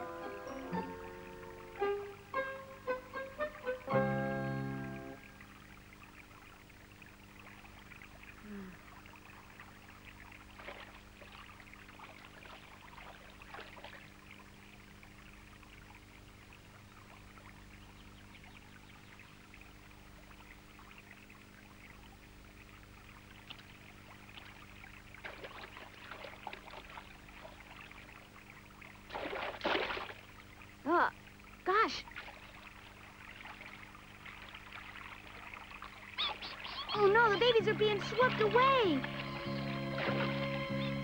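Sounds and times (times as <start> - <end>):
stream water trickling: 0.0 - 41.0.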